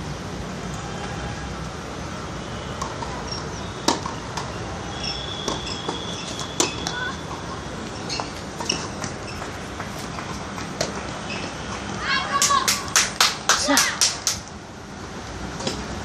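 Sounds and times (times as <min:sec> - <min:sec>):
steady background noise: 0:00.0 - 0:16.0
tennis ball bounces: 0:03.8 - 0:04.5, 0:05.4 - 0:11.1.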